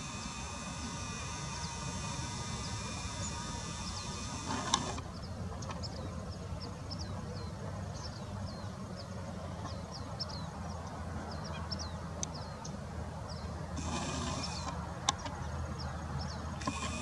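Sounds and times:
brief buzzing hiss: 0:00.0 - 0:05.0
steady low hum: 0:00.0 - 0:05.5
birds chirping: 0:00.0 - 0:17.0
sharp click: 0:00.1 - 0:05.0.

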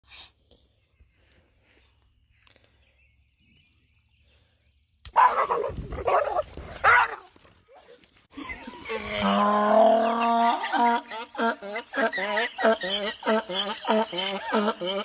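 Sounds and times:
dog yelping: 0:05.2 - 0:07.2.

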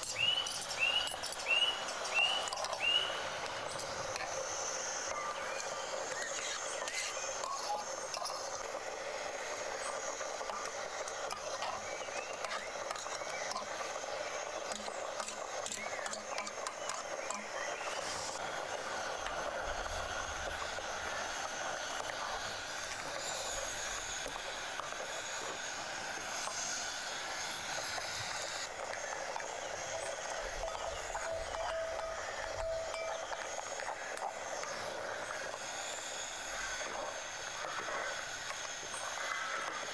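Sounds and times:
spoon clinking and scraping: 0:00.0 - 0:03.9
gas burner hissing: 0:00.0 - 0:39.9.

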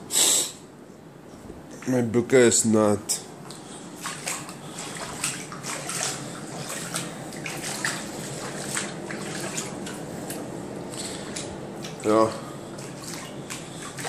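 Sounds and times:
bare feet splashing through water: 0:04.0 - 0:14.0.

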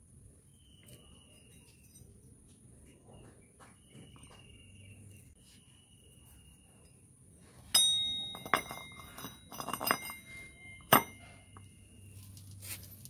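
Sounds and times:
metal sprocket clanking and ringing: 0:07.7 - 0:11.7
small metal knocks: 0:07.7 - 0:11.7.

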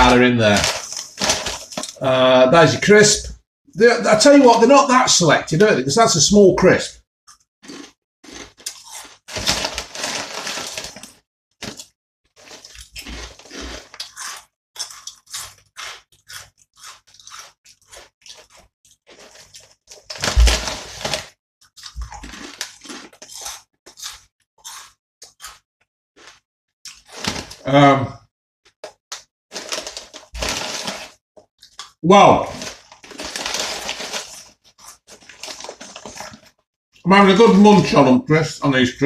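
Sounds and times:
person crunching potato crisps: 0:00.0 - 0:02.4, 0:07.3 - 0:25.6, 0:26.2 - 0:27.7, 0:28.8 - 0:36.6.

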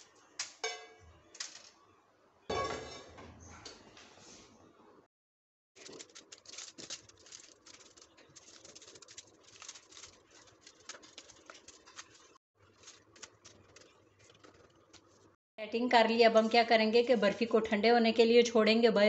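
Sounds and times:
aluminium foil crinkling: 0:05.8 - 0:15.3
spatula patting sticky mixture: 0:05.8 - 0:15.4.

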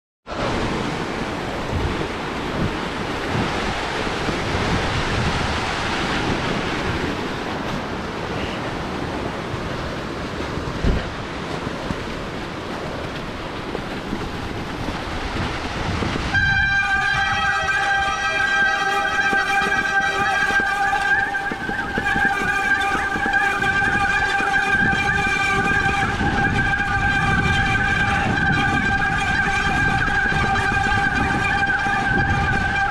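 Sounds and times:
steady high tone: 0:16.4 - 0:32.9.

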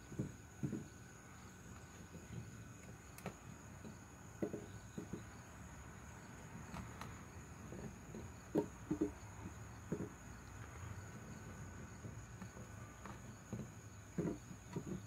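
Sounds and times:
high insect trill: 0:00.0 - 0:15.0.

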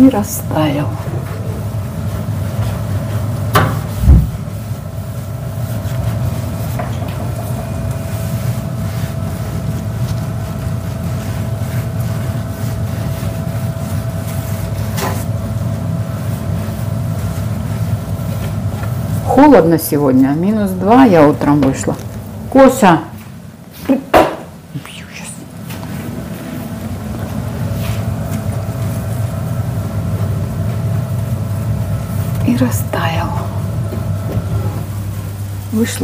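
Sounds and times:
low mechanical hum: 0:00.0 - 0:36.0
low thump: 0:03.6 - 0:04.4.

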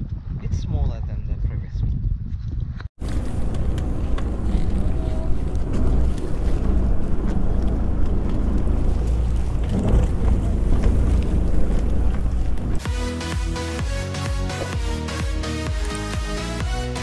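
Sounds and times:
wind buffeting microphone: 0:00.0 - 0:12.8
boat engine: 0:03.0 - 0:15.3.

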